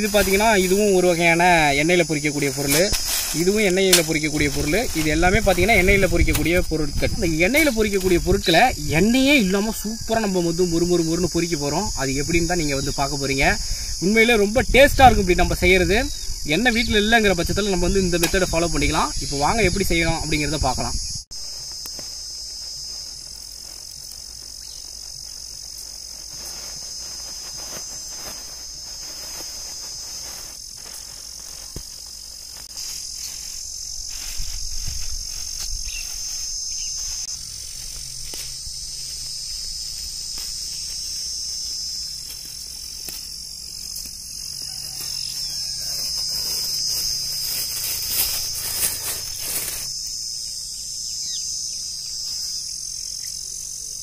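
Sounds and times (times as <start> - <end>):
high-pitched insect chorus: 0.0 - 54.0
plastic bags crinkling: 44.8 - 49.9.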